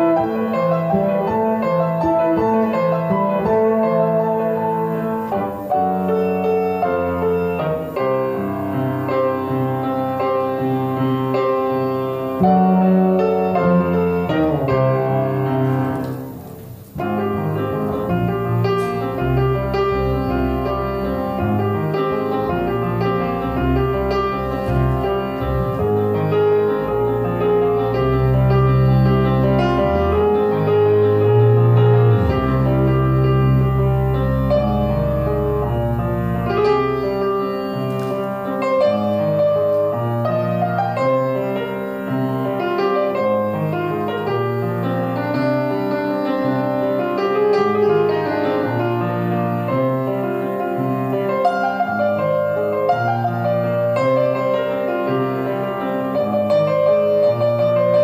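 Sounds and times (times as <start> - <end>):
grand piano playing: 0.0 - 58.0
electric bass held low notes: 17.0 - 37.2.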